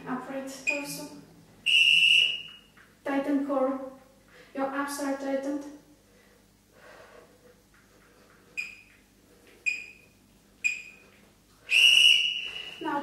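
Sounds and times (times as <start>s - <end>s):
long loud timer beep: 8.6s - 8.9s, 9.7s - 11.0s
short high timer beeps: 10.6s - 11.0s.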